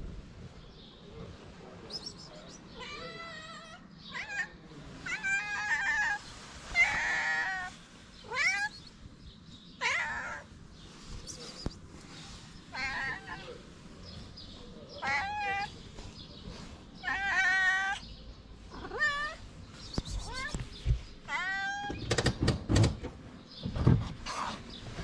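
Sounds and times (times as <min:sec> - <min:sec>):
cat meowing loudly: 0:02.7 - 0:08.8, 0:09.8 - 0:10.5, 0:12.7 - 0:13.6, 0:15.0 - 0:15.8, 0:17.0 - 0:18.0, 0:18.7 - 0:19.4, 0:20.2 - 0:20.6, 0:21.2 - 0:22.1.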